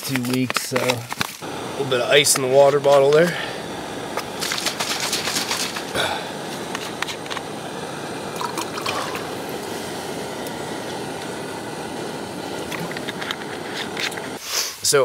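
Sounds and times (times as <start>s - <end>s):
water pouring into a pot: 8.3s - 9.8s.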